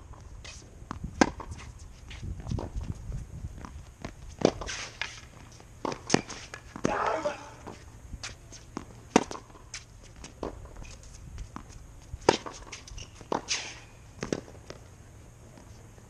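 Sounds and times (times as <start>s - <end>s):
racket hitting tennis ball: 0.5s - 2.8s, 3.6s - 10.9s, 11.5s - 14.8s
tennis ball bouncing: 0.9s - 2.8s, 3.6s - 10.8s, 11.5s - 14.8s.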